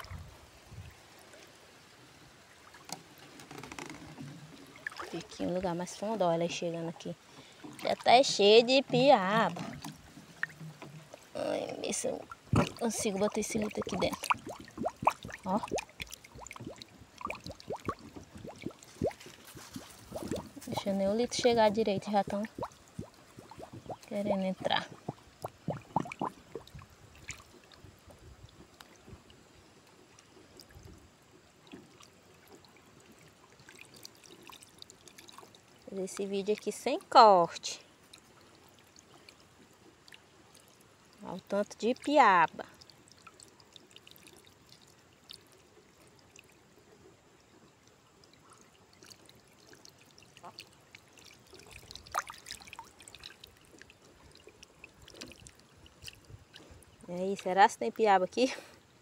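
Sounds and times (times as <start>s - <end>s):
small water drips: 0.0s - 58.9s
water lapping and trickling: 0.0s - 59.0s.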